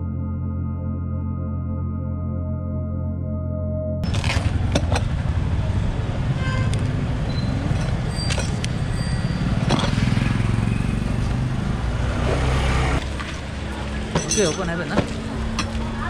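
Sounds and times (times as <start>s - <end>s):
ambient music: 0.0s - 4.1s.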